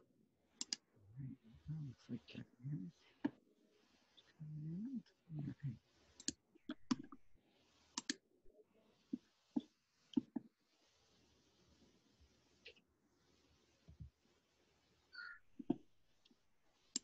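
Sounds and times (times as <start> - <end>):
sharp irregular clicks: 0.6 - 0.8, 8.0 - 8.2, 15.6 - 17.0.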